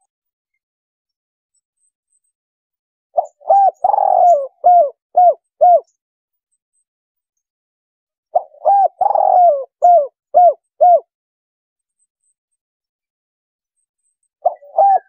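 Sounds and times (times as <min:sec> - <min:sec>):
dove cooing: 0:03.2 - 0:05.9, 0:08.4 - 0:11.1, 0:14.4 - 0:15.0.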